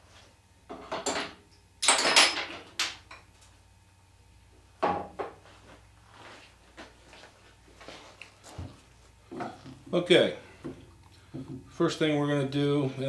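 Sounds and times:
metal tools clattering: 1.8s - 2.9s.

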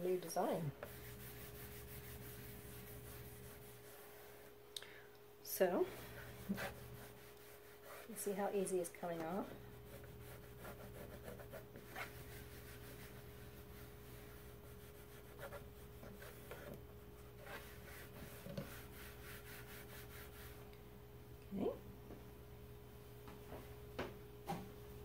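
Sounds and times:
damp wipe rubbing chalkboard: 0.0s - 4.6s, 5.9s - 8.5s, 9.3s - 20.6s
steady low hum: 0.0s - 25.0s.

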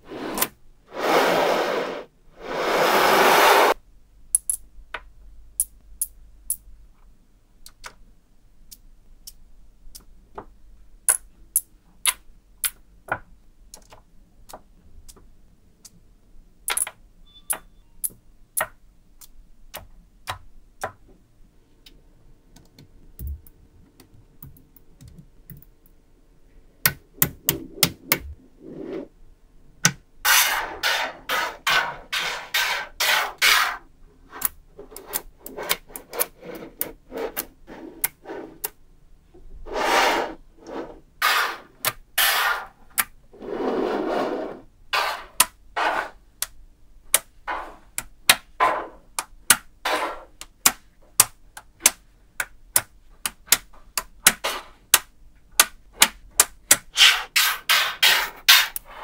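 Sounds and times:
magnetic balls clicking together: 4.3s - 6.7s, 7.6s - 8.0s, 16.6s - 21.1s.

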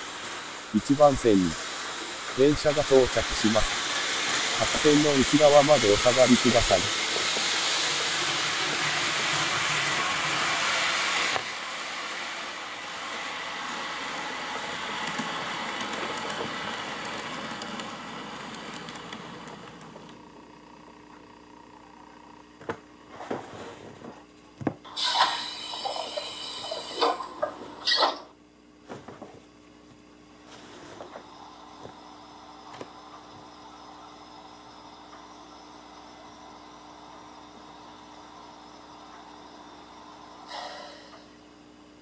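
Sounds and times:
hissing burst: 0.0s - 19.8s, 24.9s - 28.2s
train running noise: 0.0s - 20.2s, 30.6s - 41.4s.

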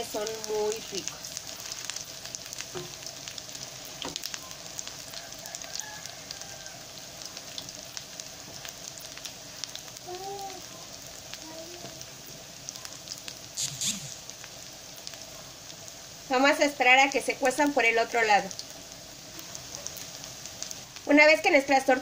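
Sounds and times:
patties sizzling in oil: 0.0s - 22.0s.

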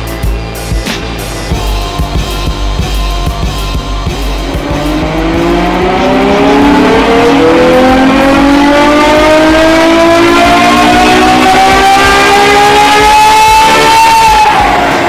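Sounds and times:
car engine at full throttle: 0.0s - 15.0s.

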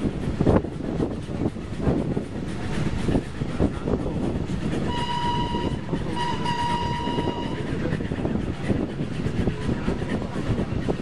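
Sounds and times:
train carriages rumbling on track: 0.0s - 11.0s
steam locomotive whistle: 4.9s - 7.8s.

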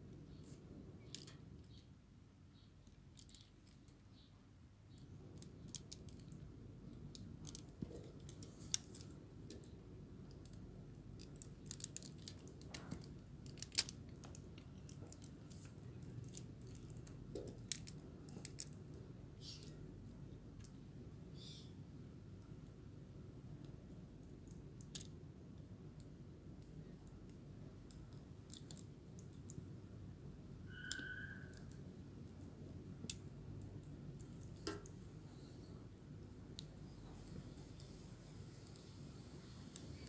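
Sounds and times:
plastic clicks and snaps: 11.2s - 18.8s.

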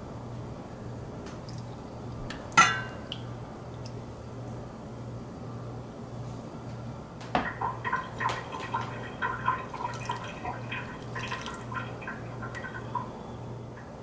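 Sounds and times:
water splashes and drips: 1.2s - 4.6s, 7.3s - 13.2s
water pouring into frying pan: 7.4s - 13.2s.

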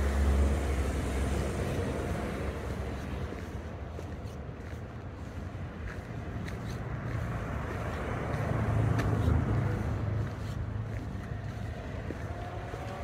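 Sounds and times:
car passing: 0.0s - 13.0s.

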